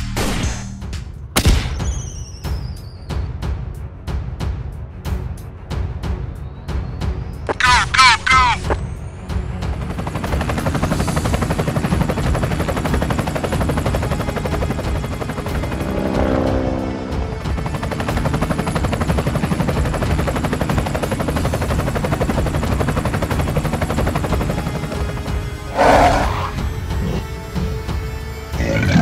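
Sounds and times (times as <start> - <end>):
helicopter rotor chopping: 7.5 - 28.9.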